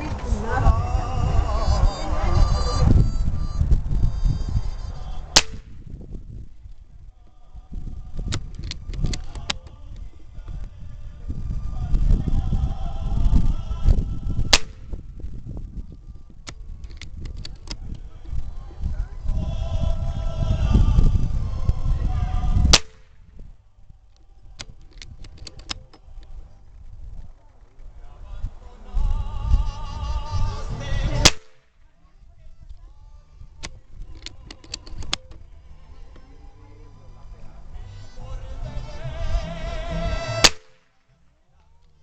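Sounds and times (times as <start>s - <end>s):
low handling rumble: 0.0s - 42.0s
sharp click: 5.4s - 5.8s, 24.6s - 26.3s.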